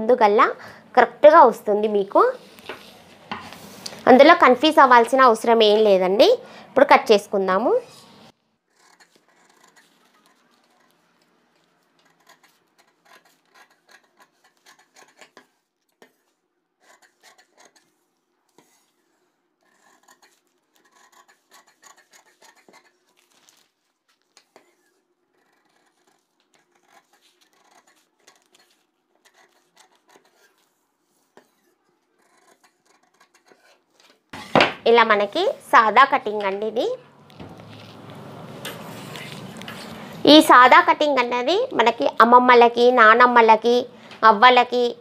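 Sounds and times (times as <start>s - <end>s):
paper rustling: 20.1s - 34.7s, 37.3s - 40.1s.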